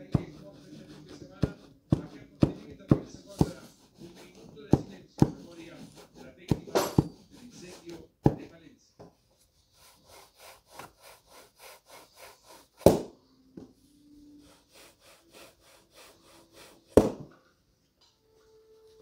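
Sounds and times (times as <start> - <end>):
cloth buffing leather shoes: 0.0 - 8.1, 9.4 - 13.1, 14.4 - 17.2.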